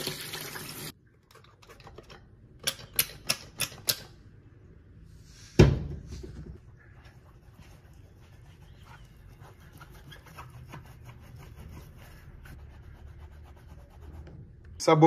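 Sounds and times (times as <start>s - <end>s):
tap water running into tub: 0.0s - 0.9s.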